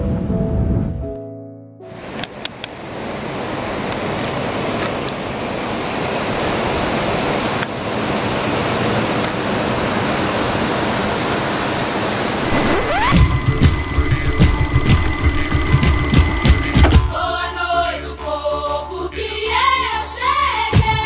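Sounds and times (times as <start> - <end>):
steady rushing noise: 11.5 - 16.8.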